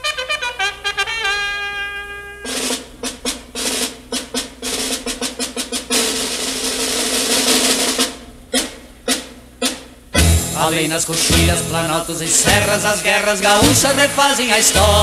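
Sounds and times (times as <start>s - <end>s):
trumpet note: 0.0s - 2.8s
snare drum strikes and roll: 2.4s - 10.6s, 11.2s - 11.7s, 13.6s - 15.0s.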